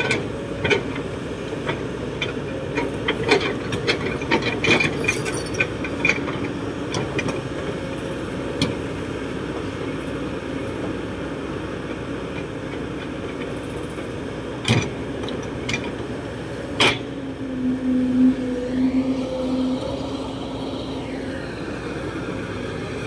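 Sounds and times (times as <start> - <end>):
excavator diesel engine under load: 0.0 - 23.0
steady low hum: 15.6 - 23.0
clanks from excavator bucket: 16.8 - 17.1.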